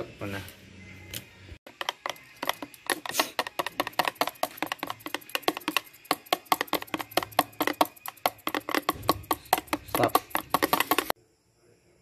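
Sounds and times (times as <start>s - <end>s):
whisk clicking against plastic tub: 1.7s - 11.1s.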